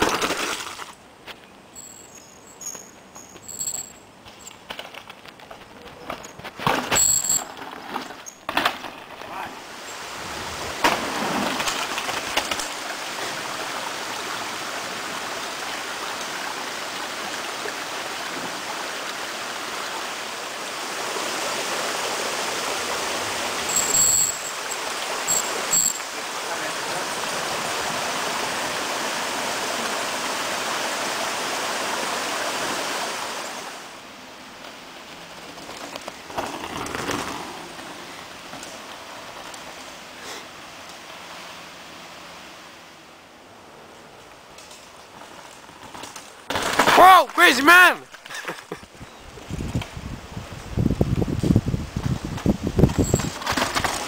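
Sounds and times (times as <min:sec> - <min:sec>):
mountain bike passing: 0:00.0 - 0:54.0
high squeaks: 0:01.8 - 0:04.0, 0:23.7 - 0:26.0
bike tyres clattering over wooden bridge: 0:01.8 - 0:09.4, 0:34.6 - 0:40.0, 0:51.9 - 0:54.0
creek rushing: 0:09.1 - 0:45.4.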